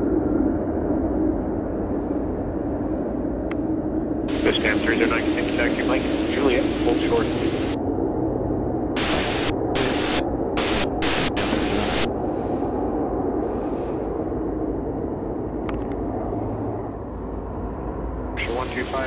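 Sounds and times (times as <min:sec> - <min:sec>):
jet rumbling down runway: 0:00.0 - 0:19.0
radio static bursts: 0:04.3 - 0:07.8, 0:09.0 - 0:12.1.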